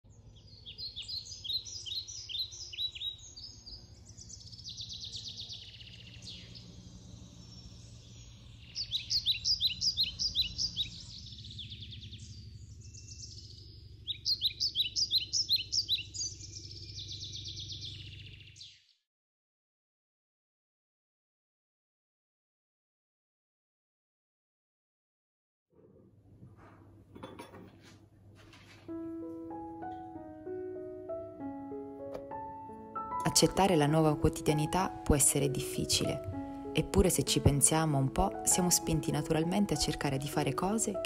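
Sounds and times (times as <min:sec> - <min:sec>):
low steady background hum: 0:00.1 - 0:18.2
songbirds chirping: 0:00.1 - 0:19.0, 0:28.8 - 0:41.0
bird trills: 0:00.4 - 0:18.8.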